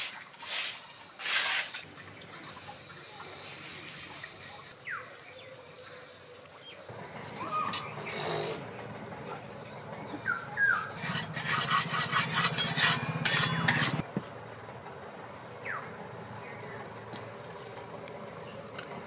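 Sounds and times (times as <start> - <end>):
metal spatula scraping metal pan: 10.8 - 14.0.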